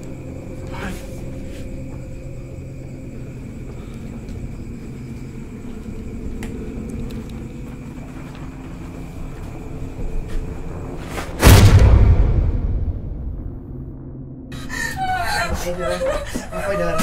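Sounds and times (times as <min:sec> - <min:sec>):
low ambient drone: 0:00.0 - 0:17.0
sudden loud hit: 0:11.3 - 0:14.4.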